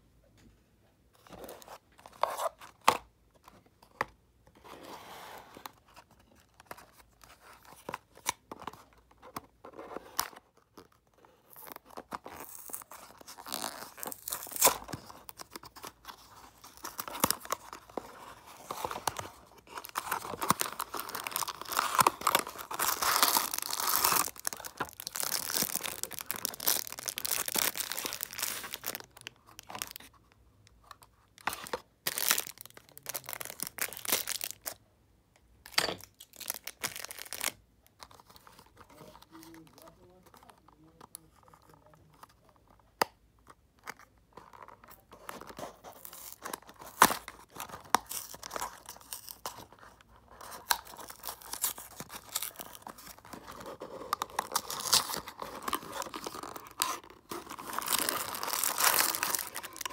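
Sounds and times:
cardboard tearing: 0:11.5 - 0:30.0, 0:50.5 - 0:59.9.

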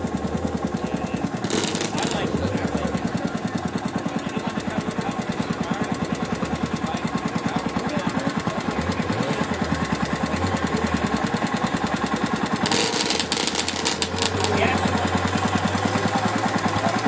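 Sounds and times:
small engine idling: 0:00.0 - 0:17.0.

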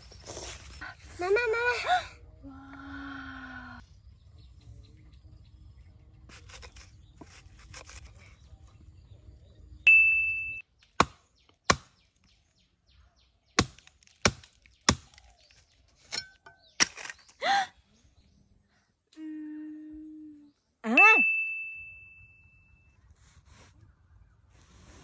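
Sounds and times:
bright ding: 0:09.9 - 0:10.6, 0:21.0 - 0:22.8
cleaver chopping into wood: 0:11.0 - 0:12.0, 0:13.6 - 0:15.3.

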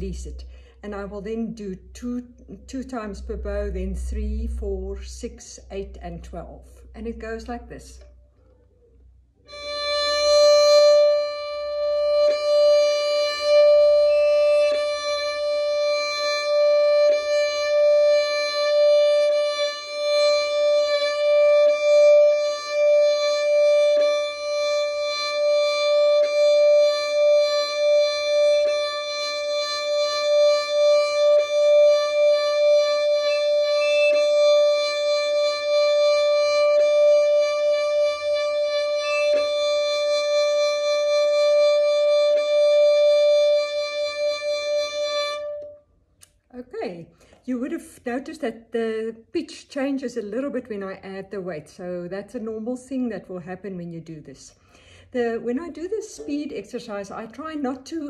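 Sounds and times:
violin bowed sustained note: 0:02.6 - 0:06.9, 0:09.5 - 0:45.8.

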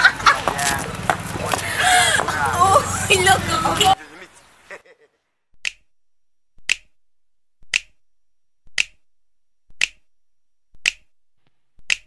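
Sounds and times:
sharp snapping clicks: 0:06.6 - 0:06.9, 0:07.6 - 0:08.0, 0:08.7 - 0:09.0, 0:09.7 - 0:10.0, 0:10.8 - 0:11.1
soft ticks: 0:09.8 - 0:10.0.

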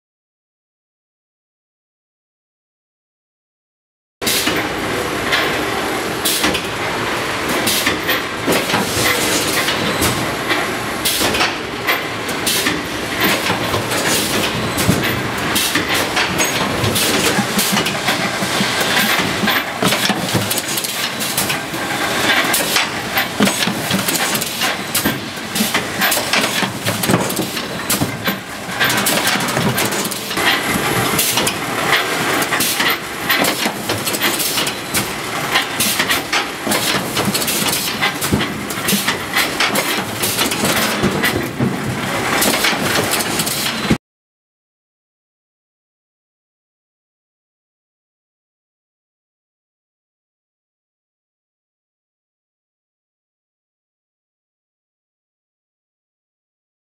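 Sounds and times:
packaging machinery din: 0:04.2 - 0:44.0
machine clacks and knocks: 0:07.4 - 0:44.0.

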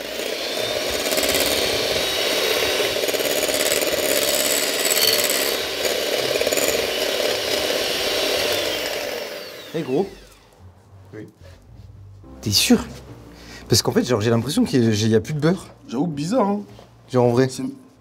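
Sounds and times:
electric hand mixer running: 0:00.0 - 0:10.5.

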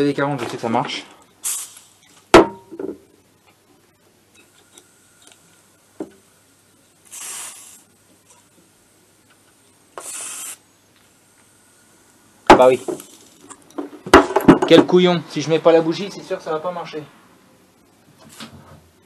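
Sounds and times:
aerosol and air hissing: 0:01.4 - 0:02.2, 0:04.4 - 0:08.6, 0:09.7 - 0:13.4
sharp knock: 0:02.4 - 0:03.0.

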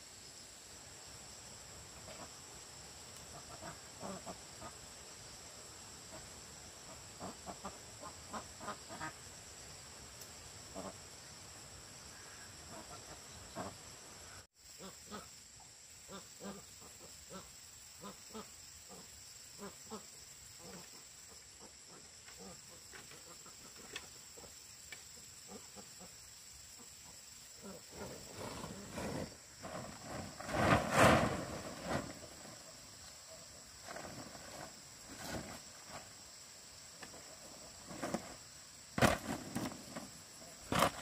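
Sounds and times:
insects chirring: 0:00.0 - 0:41.0
rough noise: 0:27.9 - 0:32.8, 0:39.0 - 0:41.0.

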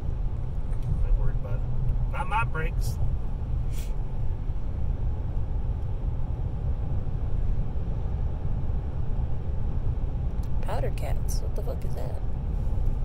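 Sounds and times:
car engine and road noise: 0:00.0 - 0:13.0
brief hiss: 0:03.7 - 0:04.0.

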